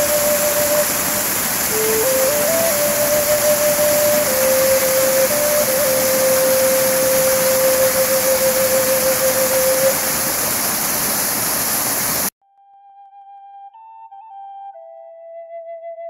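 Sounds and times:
long held flute note: 0:00.0 - 0:10.9
rushing mountain stream: 0:00.0 - 0:12.3.

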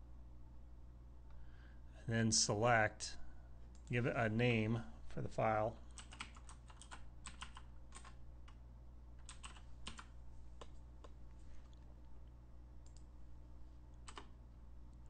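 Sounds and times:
low steady hum: 0:00.0 - 0:15.0
keyboard typing: 0:05.9 - 0:08.6, 0:09.2 - 0:11.2, 0:14.0 - 0:14.3.

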